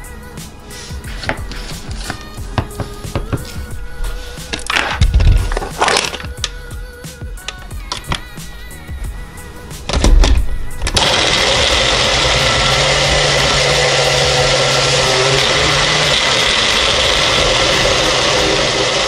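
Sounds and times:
blender motor running: 10.8s - 19.0s.

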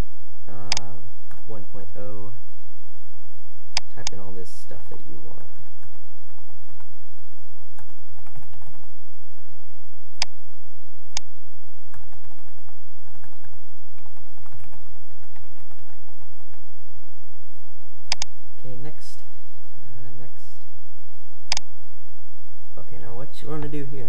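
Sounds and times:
steady low hum: 0.0s - 24.0s
keyboard key clicks: 18.1s - 18.3s.

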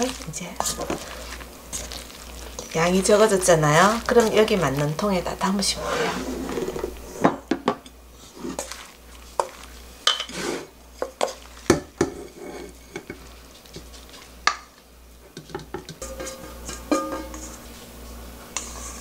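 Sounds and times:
spoon knocking steel bowl: 15.5s - 17.5s.

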